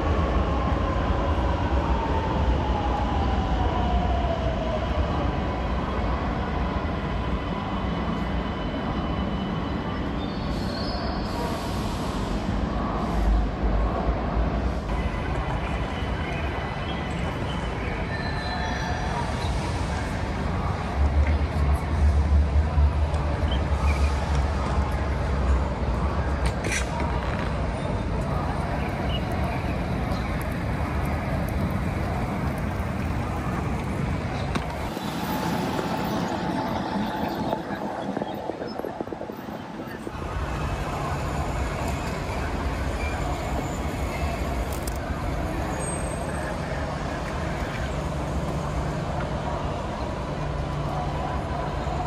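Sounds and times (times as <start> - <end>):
vehicle rumble: 11.3 - 52.0.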